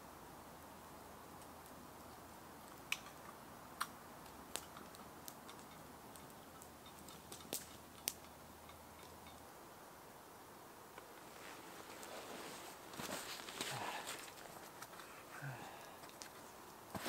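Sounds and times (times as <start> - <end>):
campfire crackling: 0.0 - 17.0
soft steady hiss: 0.0 - 17.0
sharp fire pops: 2.7 - 8.3.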